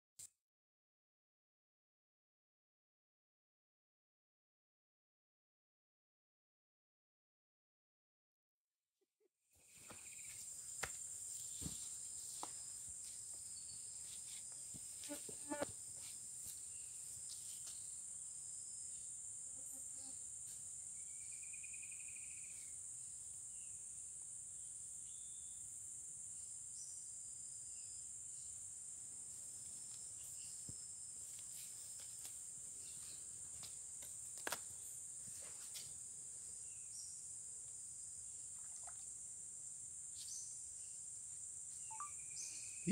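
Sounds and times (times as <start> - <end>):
high-pitched insect chorus: 9.6 - 42.9.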